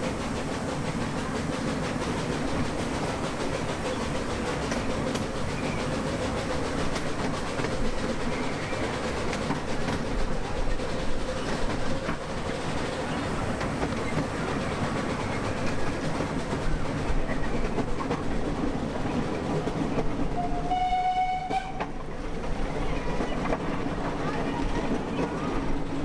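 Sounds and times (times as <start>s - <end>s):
train wheels clattering on track: 0.0s - 26.0s
locomotive signal tone: 20.4s - 21.8s.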